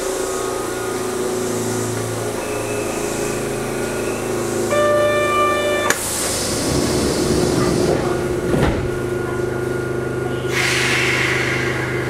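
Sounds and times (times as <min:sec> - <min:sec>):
train equipment hum: 0:00.0 - 0:12.0
train door thud: 0:07.5 - 0:09.0
air hiss: 0:10.5 - 0:12.0.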